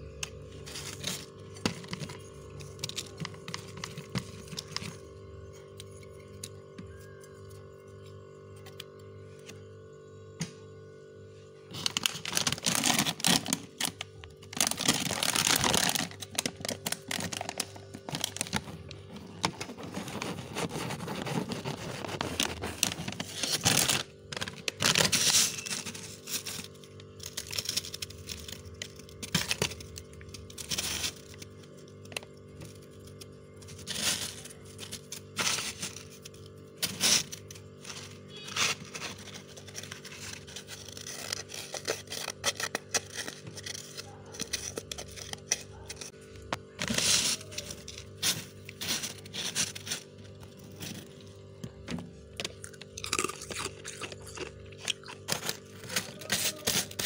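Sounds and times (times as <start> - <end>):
frost crunching under spoon: 11.7 - 57.0.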